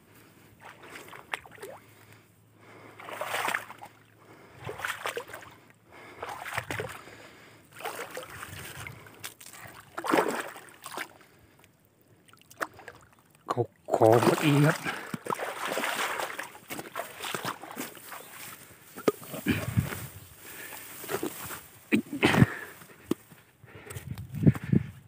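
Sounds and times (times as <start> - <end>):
pond water splashing: 0.5 - 23.2
weeds rustling: 16.6 - 23.0.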